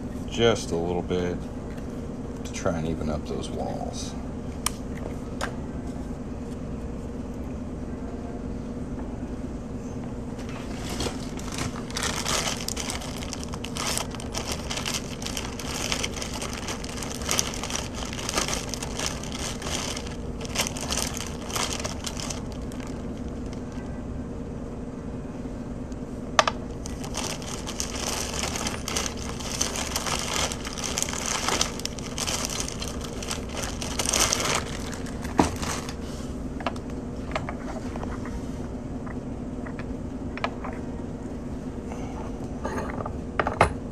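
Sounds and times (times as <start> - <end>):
low hum: 4.1 - 42.7
tape crinkling and rustling: 10.4 - 23.9, 26.7 - 36.0.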